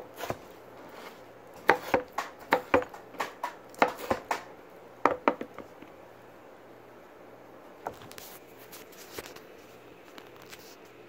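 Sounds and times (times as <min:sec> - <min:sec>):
knife chopping on cutting board: 0:01.0 - 0:04.5, 0:05.1 - 0:05.6.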